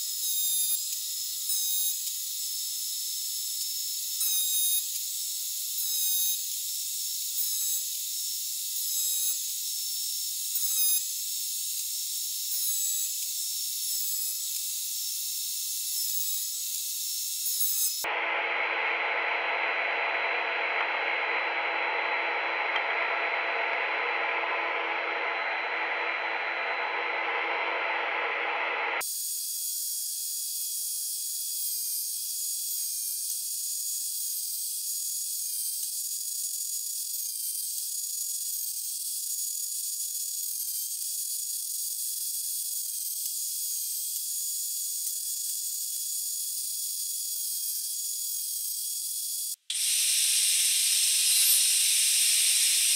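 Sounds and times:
thin high whine: 0:17.5 - 0:29.0, 0:49.7 - 0:52.9
thickness planer running: 0:18.0 - 0:29.0.

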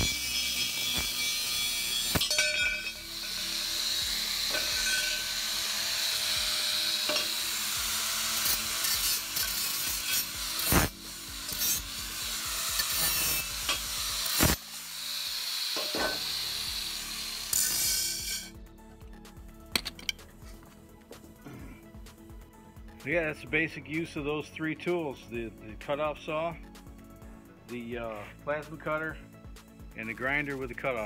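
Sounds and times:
sharp metal clanks: 0:00.0 - 0:03.4, 0:04.5 - 0:05.3, 0:15.8 - 0:16.3
angle grinder cutting steel: 0:00.0 - 0:18.6.

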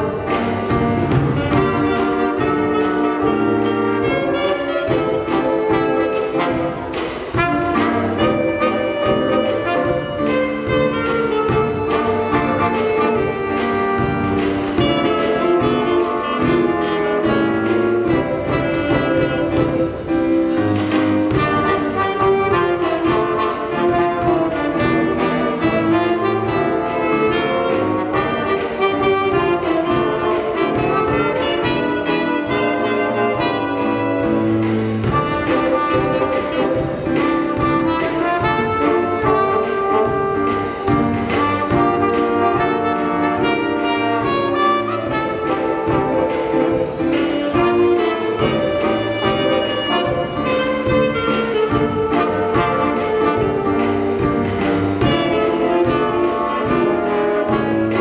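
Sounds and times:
jazz band playing: 0:00.0 - 0:58.0.

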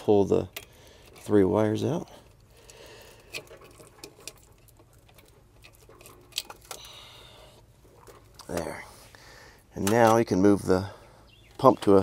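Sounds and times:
wires scraping through conduit: 0:00.6 - 0:09.1.

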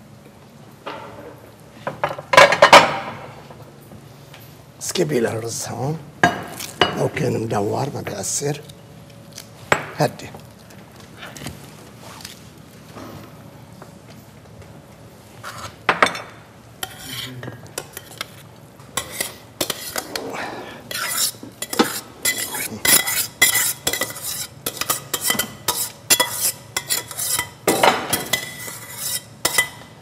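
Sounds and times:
metal spoon scraping steel pot: 0:20.9 - 0:27.6, 0:28.2 - 0:29.8.

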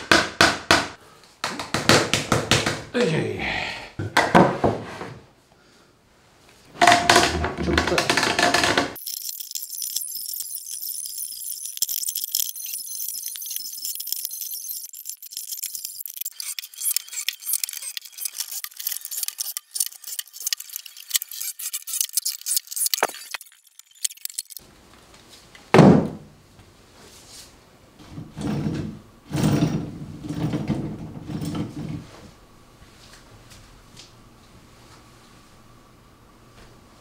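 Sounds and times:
power tools knocking on wooden shelves: 0:04.0 - 0:04.9, 0:06.8 - 0:09.0, 0:25.7 - 0:26.2.

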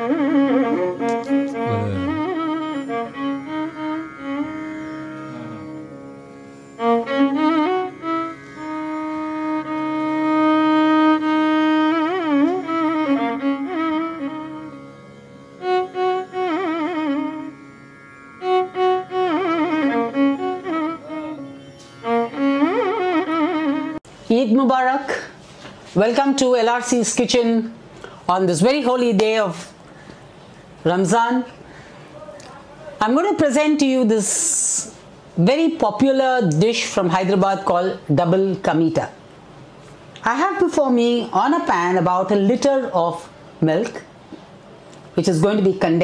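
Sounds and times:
bowed string instrument melody: 0:00.0 - 0:24.1.

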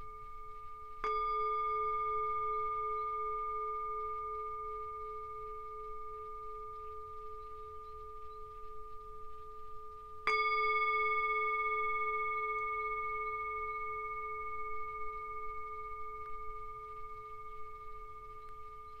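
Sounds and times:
singing bowl ringing: 0:00.0 - 0:19.0
mallet striking bowl: 0:01.0 - 0:08.0.

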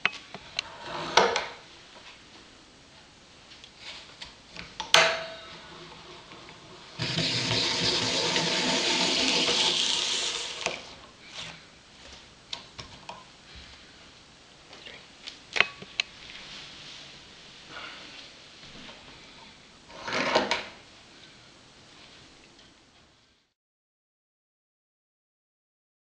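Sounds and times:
apple peeler scraping hiss: 0:06.5 - 0:10.9.

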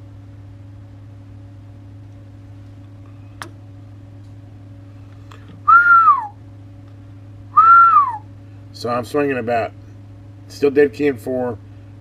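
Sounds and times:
low electrical hum: 0:00.0 - 0:12.0
man whistling: 0:05.7 - 0:06.4, 0:07.5 - 0:08.3.

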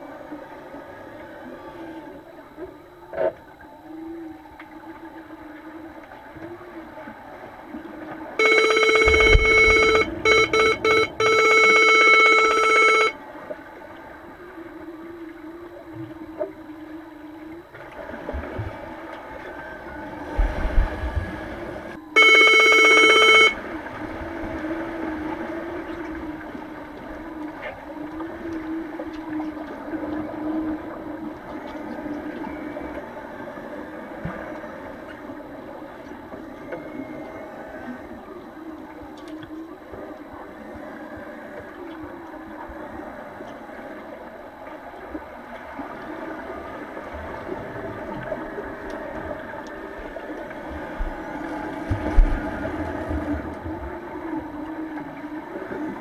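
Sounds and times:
low underwater hum: 0:00.0 - 0:56.0
underwater signal horn tone: 0:08.2 - 0:13.6, 0:20.4 - 0:33.3.

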